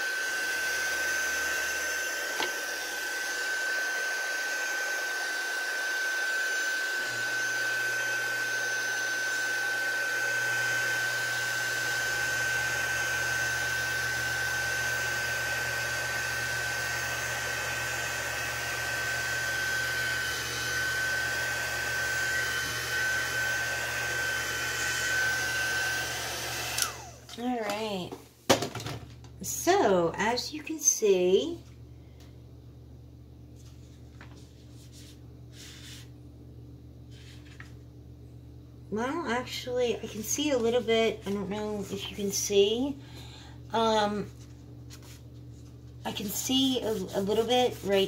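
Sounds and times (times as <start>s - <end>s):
electric dryer blowing air: 0.0s - 28.1s, 38.9s - 44.4s, 45.9s - 48.0s.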